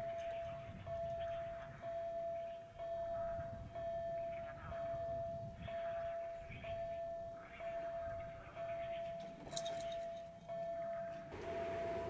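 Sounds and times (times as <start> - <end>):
level crossing warning bell: 0.0 - 12.0.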